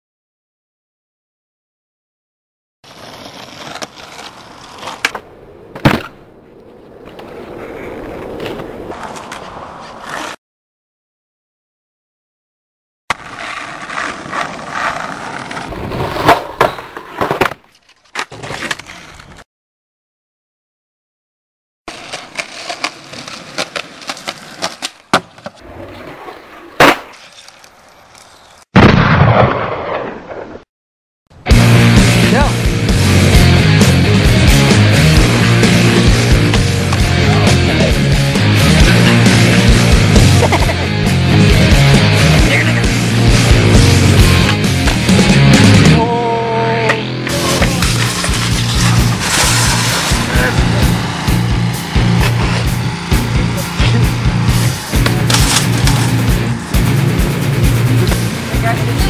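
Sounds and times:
skateboard wheels rolling on asphalt: 2.8s - 10.4s, 13.1s - 19.4s, 21.9s - 28.7s, 33.9s - 45.8s, 47.3s - 59.0s
skateboard wheels clicking: 2.9s - 10.4s, 13.1s - 17.4s, 21.9s - 25.7s
sharp crack: 3.7s - 7.3s, 26.8s - 30.6s, 47.3s - 58.4s
skateboard landing clack: 4.8s - 6.2s, 15.6s - 18.8s, 22.1s - 25.6s, 26.8s - 27.6s, 54.9s - 56.2s
skateboard snap: 54.9s - 56.2s.

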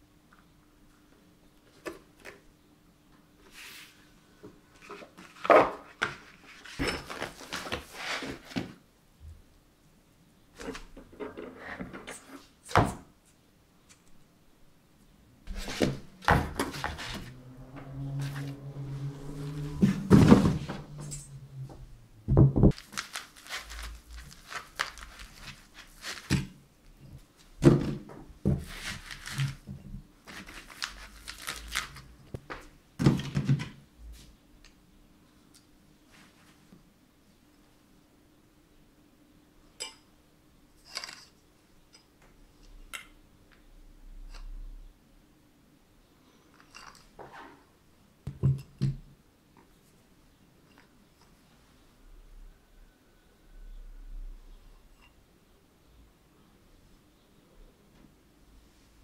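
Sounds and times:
low steady hum: 13.2s - 30.3s.

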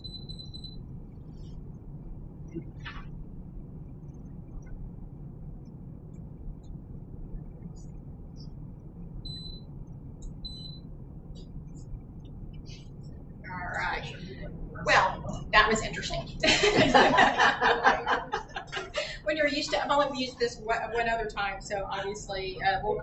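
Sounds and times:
steady low hum: 0.0s - 23.0s
cooktop touch control beeps: 9.3s - 9.6s.

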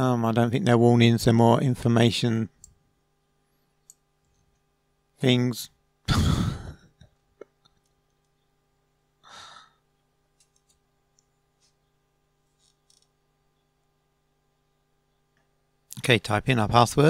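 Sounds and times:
faint steady hum: 0.0s - 17.0s
person sighing: 6.1s - 6.9s, 9.2s - 9.8s.

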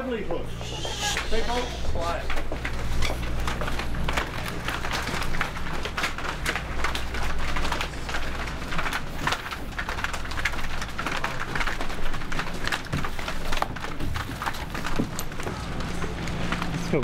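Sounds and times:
footsteps on pavement: 0.0s - 8.6s
clothing rustle: 0.0s - 17.0s.

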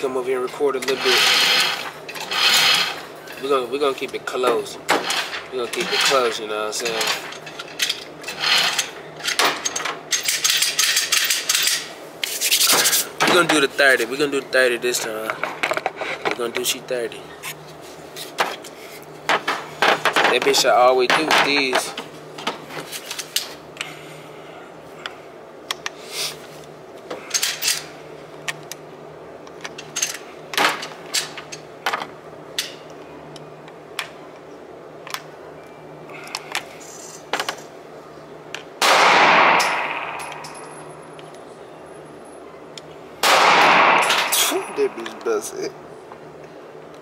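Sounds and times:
gunshots with echo: 38.8s - 40.5s, 43.2s - 44.8s.

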